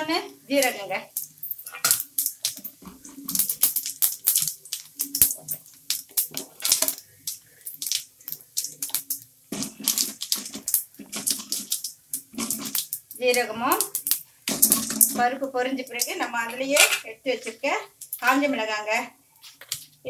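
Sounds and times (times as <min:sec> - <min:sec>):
seeds crackling in hot oil: 0:00.0 - 0:20.0
wooden spatula stirring: 0:01.2 - 0:16.7.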